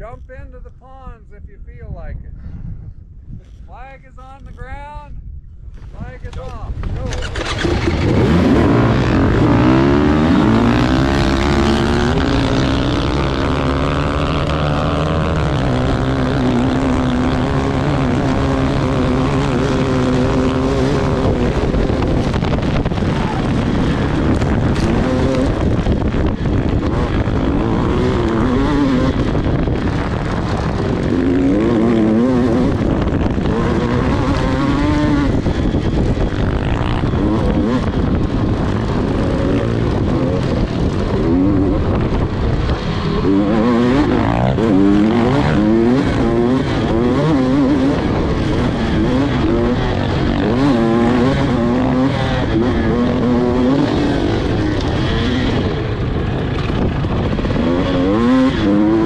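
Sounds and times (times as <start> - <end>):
dirt bike engine at full throttle: 5.6 - 59.0.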